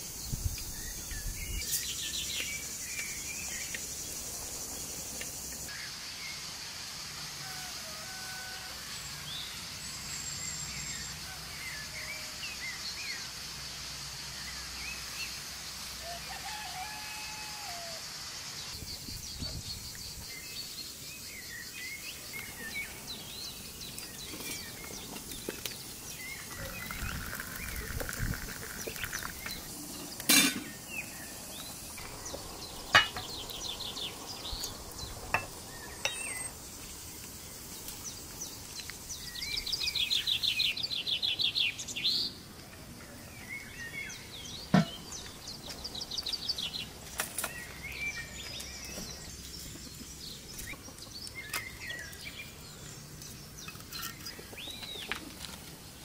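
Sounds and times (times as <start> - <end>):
small birds chirping: 0.0 - 6.5, 18.4 - 56.0
steady high hiss: 0.0 - 56.0
cookware clinking: 30.3 - 30.7, 33.0 - 33.2.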